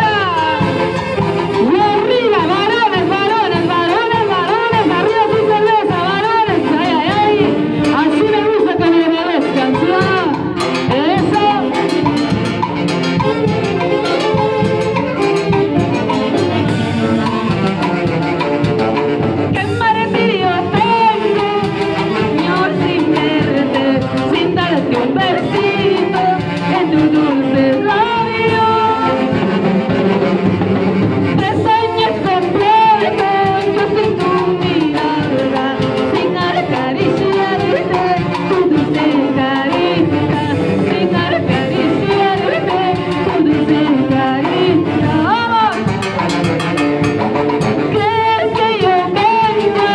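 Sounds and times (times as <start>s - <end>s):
woman singing: 0.0s - 12.5s, 19.5s - 29.6s, 31.3s - 46.0s, 47.8s - 49.9s
orchestra playing: 0.0s - 49.9s
saxophones: 0.0s - 49.9s.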